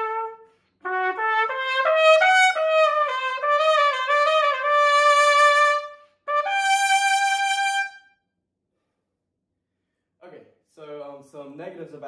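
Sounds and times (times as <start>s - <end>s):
solo trumpet playing: 0.0s - 8.2s.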